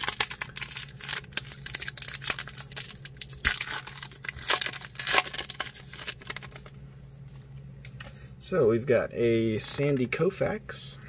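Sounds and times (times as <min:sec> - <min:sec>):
wrapper crackling: 0:00.0 - 0:06.8
wrapper ripping: 0:00.0 - 0:06.8.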